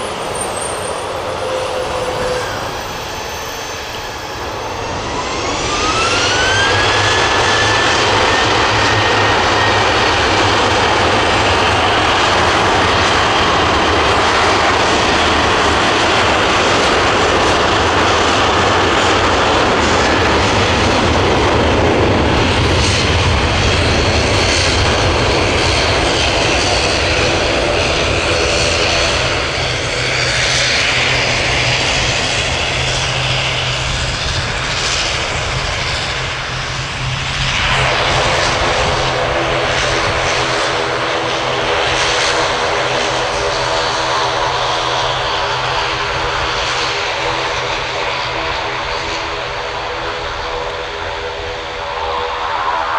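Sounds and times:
jet engines at takeoff thrust: 0:00.0 - 0:52.9.

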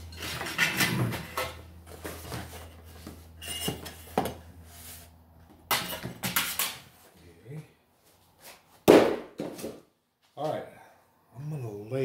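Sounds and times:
cardboard rustling and scraping: 0:00.2 - 0:05.2.

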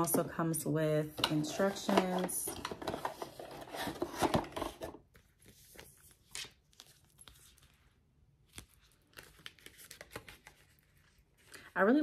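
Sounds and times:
paper packaging rustling: 0:01.2 - 0:11.6.

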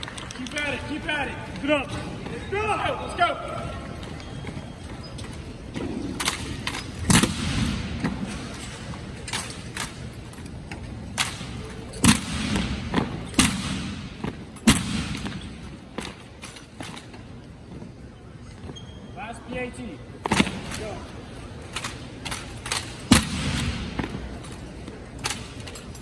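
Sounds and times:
rifles slapped and struck down: 0:11.2 - 0:14.0, 0:21.8 - 0:24.1.

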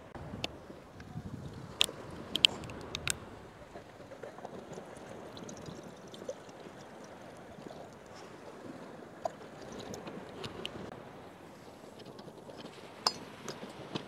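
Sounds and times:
faint watery tea sound: 0:00.9 - 0:10.9
small clicks: 0:01.8 - 0:03.2.

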